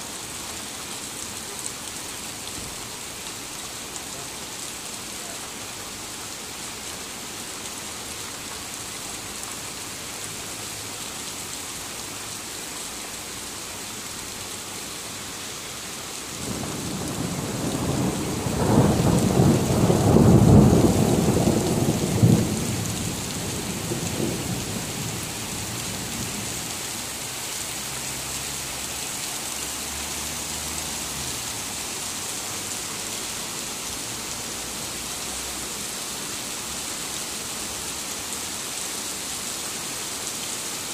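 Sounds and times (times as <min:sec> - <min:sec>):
heavy rain: 0:00.0 - 0:40.9
thunder rolling: 0:16.5 - 0:24.8.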